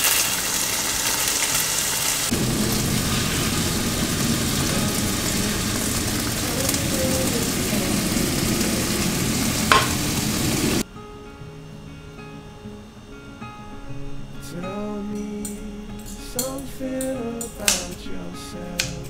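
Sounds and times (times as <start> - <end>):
greens sizzling in frying pan: 0.0 - 10.8
airplane flying overhead: 0.6 - 10.8.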